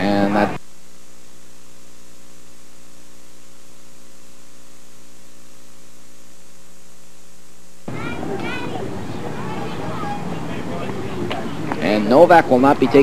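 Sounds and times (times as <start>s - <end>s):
electrical mains hum with hiss: 0.0s - 13.0s.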